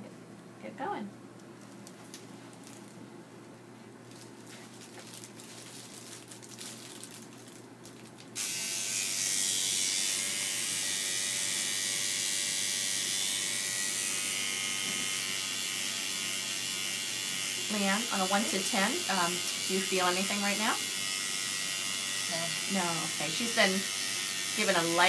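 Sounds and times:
faint handling sounds: 0:01.3 - 0:08.3
microneedling pen motor buzzing: 0:08.4 - 0:25.0.

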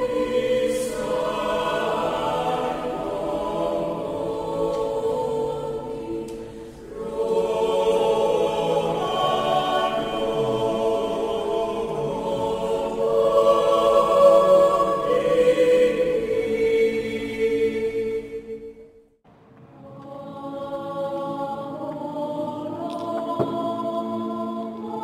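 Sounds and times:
mixed choir singing a cappella: 0:00.0 - 0:18.9, 0:19.8 - 0:25.0.

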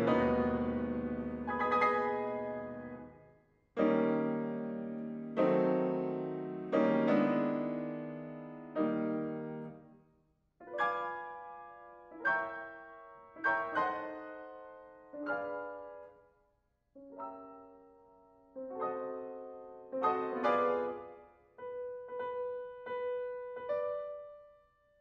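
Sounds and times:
piano playing slow chords: 0:00.0 - 0:03.2.

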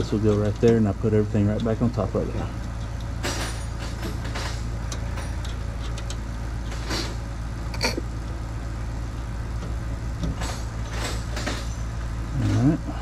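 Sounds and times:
steady low hum: 0:00.0 - 0:13.0
metallic clicks and rattles: 0:01.4 - 0:07.2.

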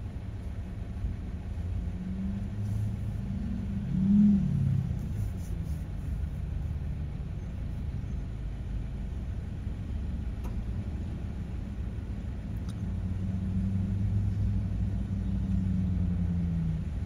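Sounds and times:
pickup truck engines rumbling: 0:00.0 - 0:17.0
engine revving: 0:01.8 - 0:05.1.

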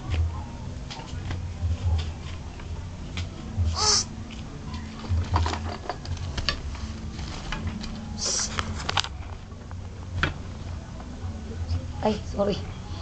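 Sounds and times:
low steady hum: 0:00.0 - 0:13.0
phone rustling and scraping: 0:05.0 - 0:09.8.

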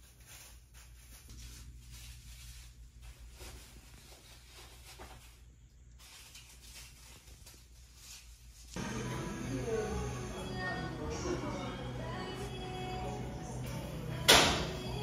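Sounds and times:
rustling and handling noises: 0:00.0 - 0:08.8
low steady hum: 0:08.5 - 0:15.0.

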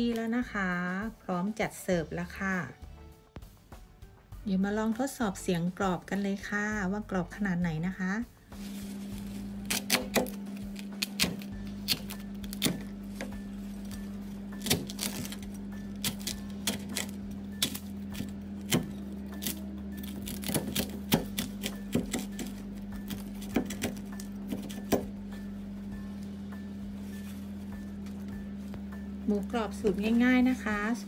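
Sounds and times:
crispy skin crackling and crunching: 0:14.4 - 0:24.7.

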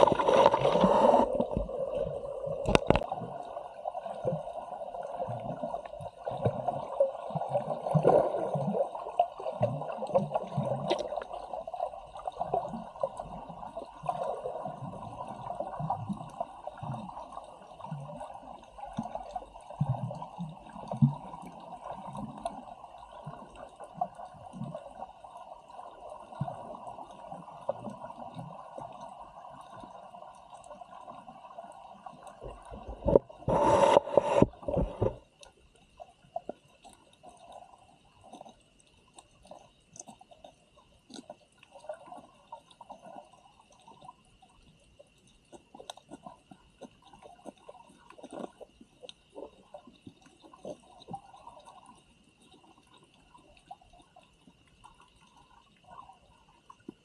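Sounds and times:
faint crackles: 0:00.0 - 0:08.5, 0:09.2 - 0:57.0
muffled underwater bubbling: 0:00.0 - 0:35.3.

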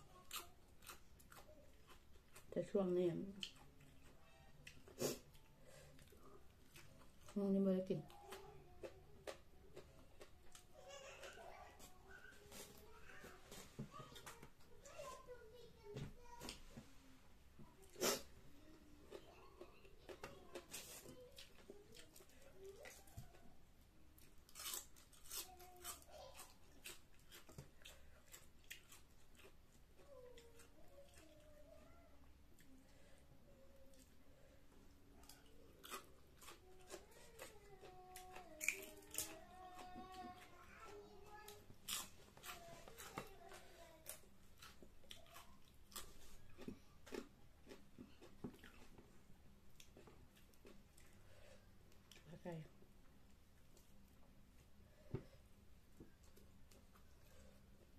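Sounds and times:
crunchy chewing: 0:00.1 - 0:02.5, 0:24.2 - 0:31.8, 0:35.2 - 0:52.3
cabbage leaf tearing: 0:24.5 - 0:26.4.

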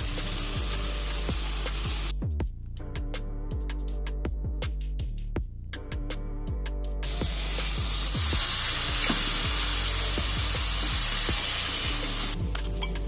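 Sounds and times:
vegetables sizzling in oil: 0:00.0 - 0:02.1, 0:07.0 - 0:12.4
electronic music with steady beat: 0:00.0 - 0:13.0.

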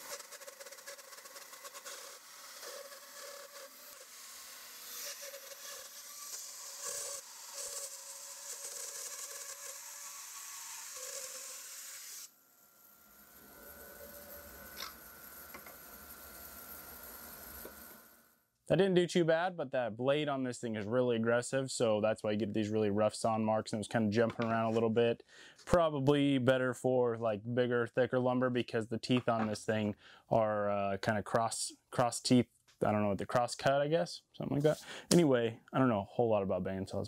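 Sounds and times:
bandsaw cutting wood: 0:00.0 - 0:18.2
bandsaw running hum and whine: 0:00.0 - 0:18.3.

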